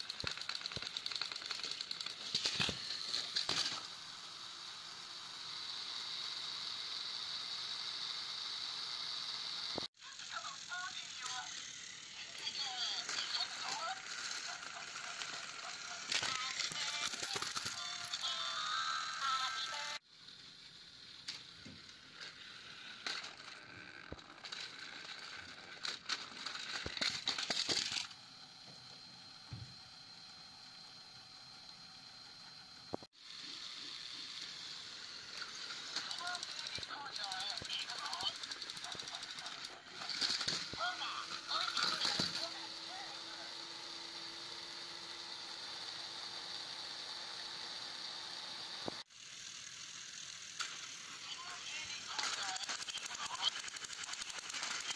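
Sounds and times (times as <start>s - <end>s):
toy train cars clattering: 0.0s - 4.0s, 5.4s - 19.4s, 21.0s - 28.2s, 33.3s - 43.6s, 49.2s - 54.9s
toy trains rattling on plastic track: 0.0s - 28.3s, 33.1s - 54.9s.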